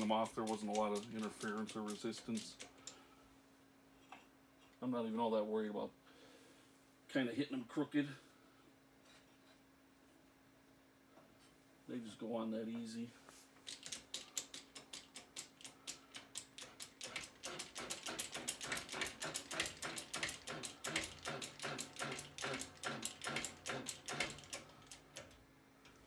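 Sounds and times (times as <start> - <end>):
hydraulic jack pump clicking: 13.7 - 25.4.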